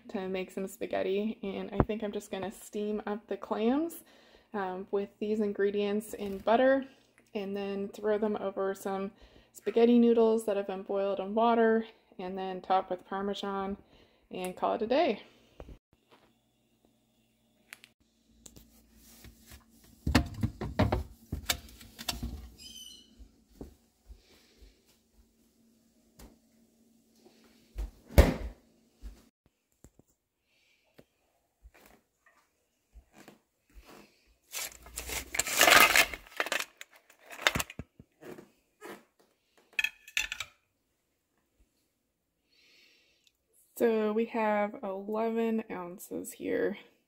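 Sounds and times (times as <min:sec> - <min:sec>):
short high squeak: 0:22.6 - 0:23.2.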